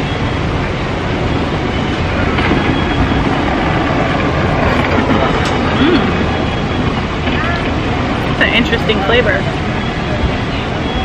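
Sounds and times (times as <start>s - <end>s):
wind buffeting microphone: 0.4s - 10.8s
faint voices: 7.3s - 11.0s.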